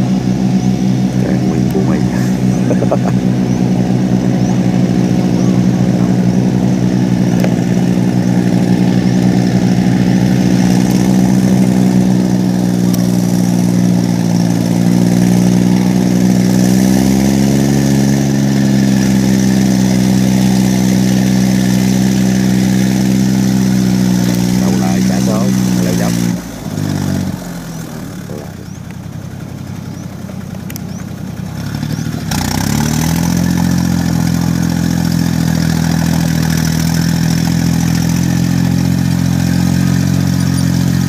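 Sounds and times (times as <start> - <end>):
diesel engine running: 0.0 - 41.0.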